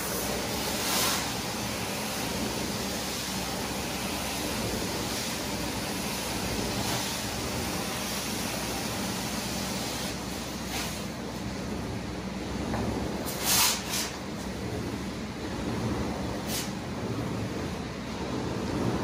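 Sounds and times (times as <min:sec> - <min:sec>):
suction and spray hiss: 0:00.0 - 0:11.2, 0:13.2 - 0:14.3, 0:16.3 - 0:16.9.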